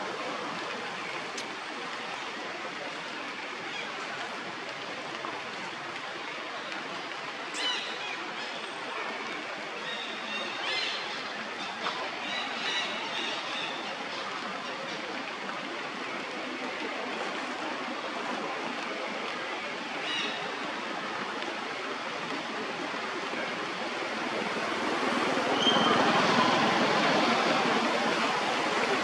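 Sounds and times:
steady rushing noise: 20.9 - 29.0.

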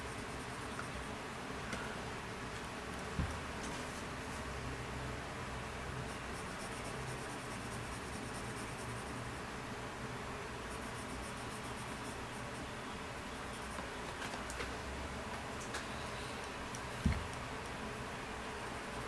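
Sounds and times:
colored pencil scratching on paper: 6.1 - 9.3, 10.7 - 12.7.

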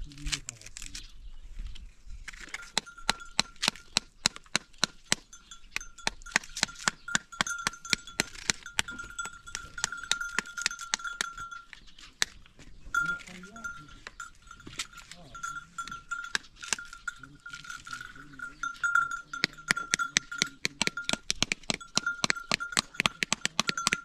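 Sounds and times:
livestock bells clinking: 2.4 - 24.0
high ringing tone: 2.5 - 3.9, 5.3 - 11.8, 12.9 - 24.0.

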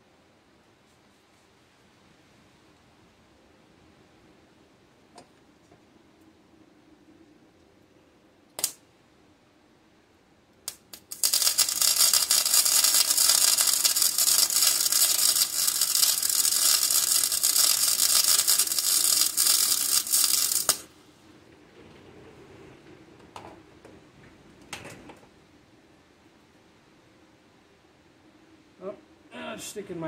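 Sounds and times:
crackling arc weld: 8.6 - 8.8, 10.6 - 20.9
welding arc clicks: 8.6 - 8.8, 10.6 - 20.9.

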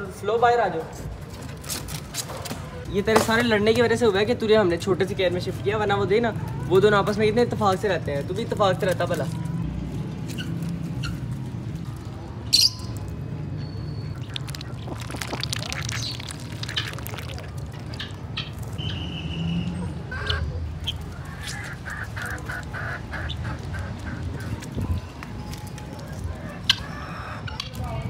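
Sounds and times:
ducks quacking: 14.1 - 18.6, 20.0 - 24.9
ducks splashing in water: 14.1 - 18.8.

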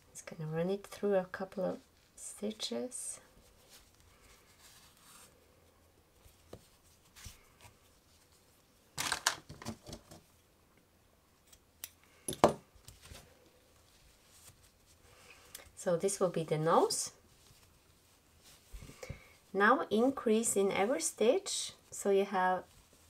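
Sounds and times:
yarn rustling with crochet hook: 0.0 - 9.3, 12.7 - 23.0.

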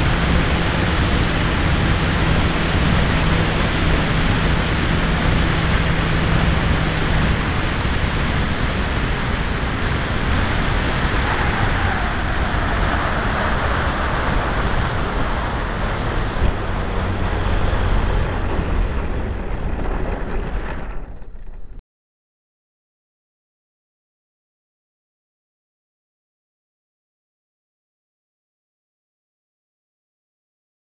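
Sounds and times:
model aeroplane engine running: 0.0 - 21.8
wind rushing noise: 0.0 - 21.8.

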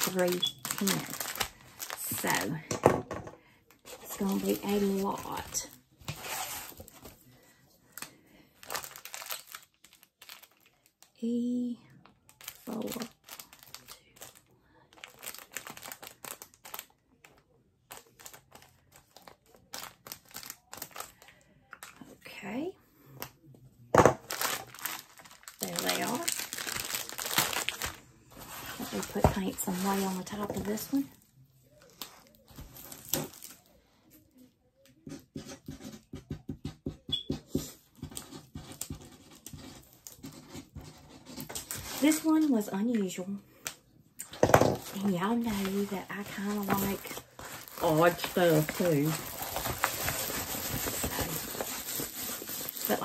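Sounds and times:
plastic bags crinkling: 0.0 - 2.8, 3.8 - 7.4, 8.0 - 11.1, 12.2 - 22.1, 24.0 - 31.1, 31.7 - 33.7, 44.2 - 53.0.

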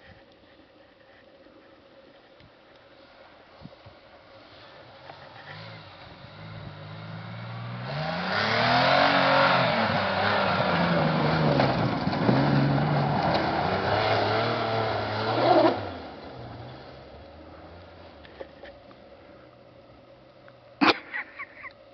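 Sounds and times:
engine revving hard: 5.4 - 16.0.

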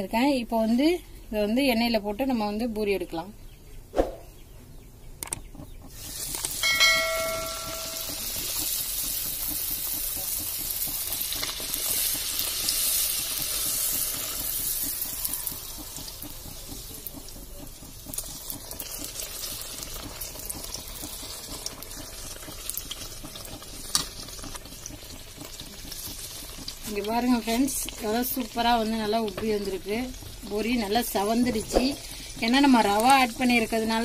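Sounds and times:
oil sizzling: 5.8 - 34.0
oil crackles: 8.0 - 33.9.

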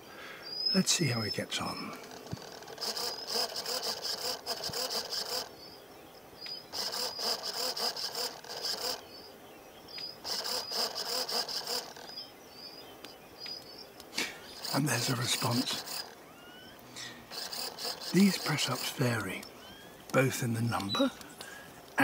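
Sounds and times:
insect rasping buzzing call: 0.0 - 22.0
faint high chirps: 8.5 - 21.6.

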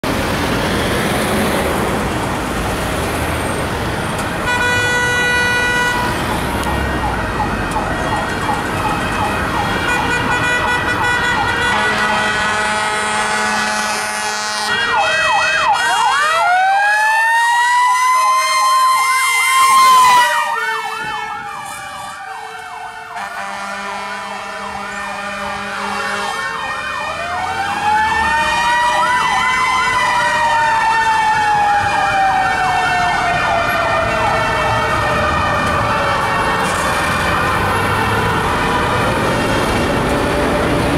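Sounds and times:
warbling siren: 4.6 - 40.8
two-note horn blasts: 23.2 - 26.4.

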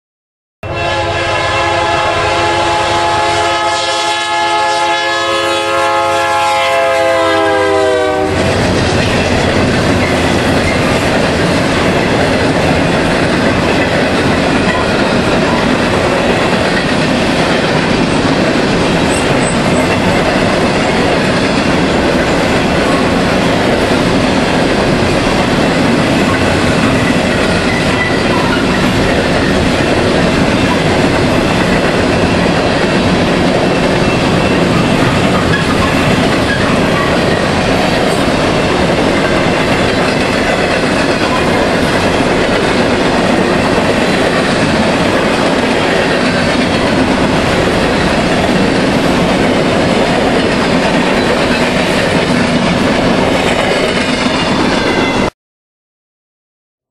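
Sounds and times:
locomotive air horn blast: 0.6 - 8.8
train rumble and wheel clatter: 0.8 - 55.3.

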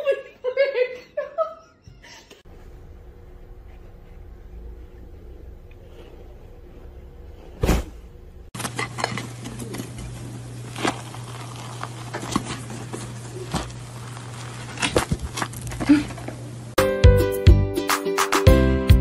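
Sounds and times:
steady low hum: 2.5 - 16.8
dull thump: 7.6 - 8.1
chocolate shell crackling: 9.3 - 16.5.

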